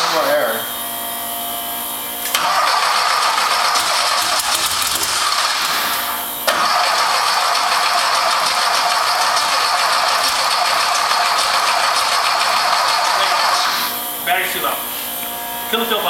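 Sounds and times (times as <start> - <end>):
engine cranking by starter: 0.0 - 0.6, 2.2 - 14.0.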